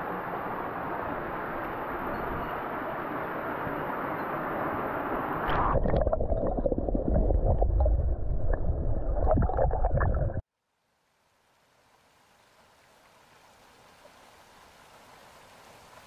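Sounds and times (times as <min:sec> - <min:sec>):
flowing water rushing: 0:00.0 - 0:10.4, 0:11.4 - 0:16.0
muffled gurgling water: 0:05.4 - 0:10.4
deep rumble: 0:05.5 - 0:10.4.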